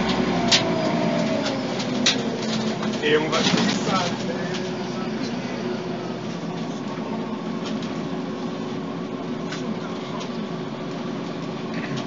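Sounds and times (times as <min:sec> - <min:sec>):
bus diesel engine running: 0:00.0 - 0:12.0.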